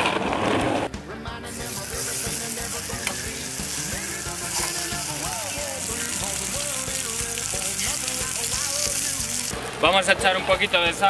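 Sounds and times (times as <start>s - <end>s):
chicken sizzling in frying pan: 1.5s - 10.0s.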